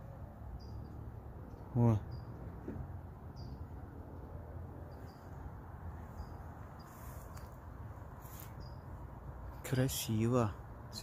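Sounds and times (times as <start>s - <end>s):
high bird chirps: 2.0s - 2.4s.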